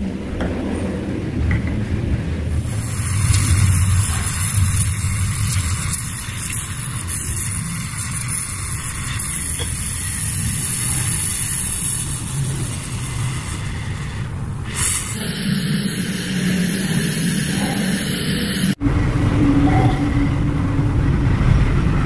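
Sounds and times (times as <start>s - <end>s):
gas torch flame hissing: 2.6s - 18.8s.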